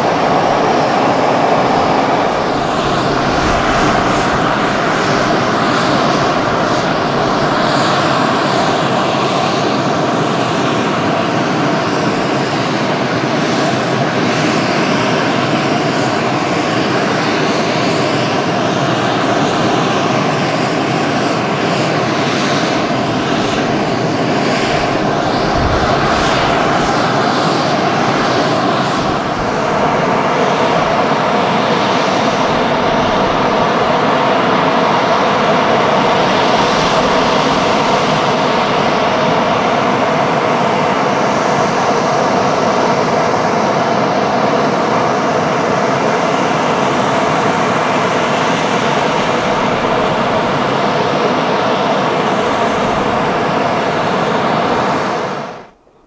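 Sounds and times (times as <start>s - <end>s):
jet engines idling: 0.0s - 56.0s.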